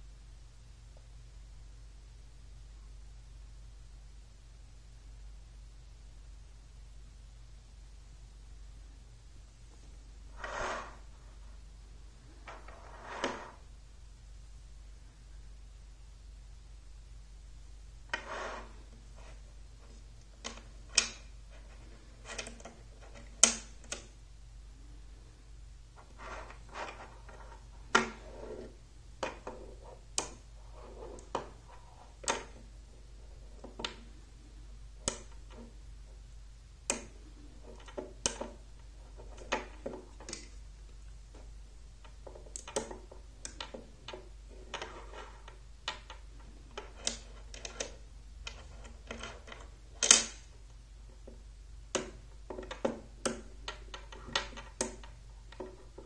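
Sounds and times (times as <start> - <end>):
soft handling noise: 9.6 - 13.7, 18.0 - 24.1, 25.9 - 36.2, 37.0 - 51.5.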